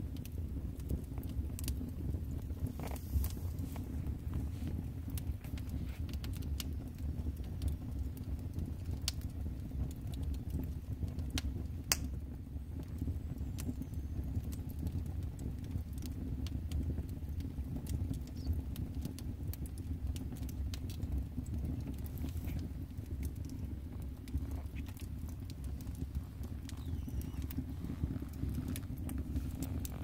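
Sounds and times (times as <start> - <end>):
steady low rumble: 0.0 - 9.1, 20.6 - 30.0
wood fire crackling and popping: 0.0 - 30.0.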